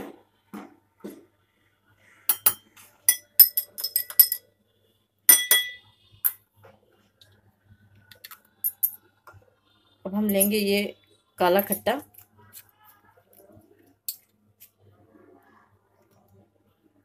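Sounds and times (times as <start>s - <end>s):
spoon clinking against glass: 2.3s - 4.5s, 5.3s - 6.4s, 10.3s - 10.7s.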